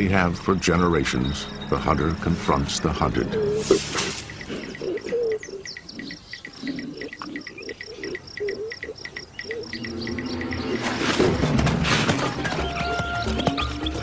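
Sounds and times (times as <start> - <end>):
low warbling calls: 1.0 - 14.0
crickets chirping: 3.5 - 11.8.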